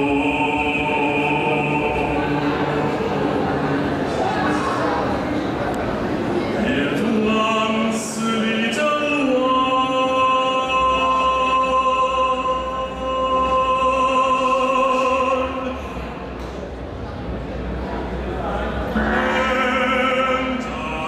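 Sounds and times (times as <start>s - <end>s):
low steady drone: 18.2s - 21.0s.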